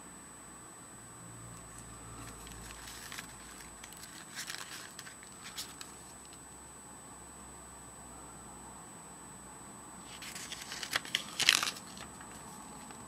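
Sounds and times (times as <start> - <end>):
steady background hiss: 0.0 - 13.0
paper rustling with crinkles: 1.7 - 6.4, 10.0 - 13.0.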